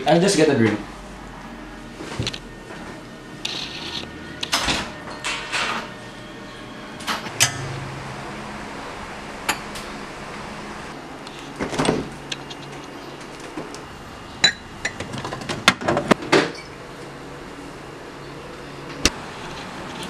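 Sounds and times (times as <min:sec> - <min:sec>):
steady low hum: 0:00.0 - 0:20.0
refrigerator door opening: 0:11.5 - 0:12.3.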